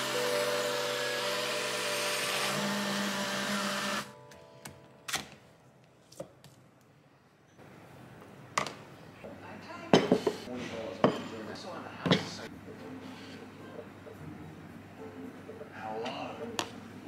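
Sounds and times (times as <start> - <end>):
portable blender whirring: 0.0 - 4.2.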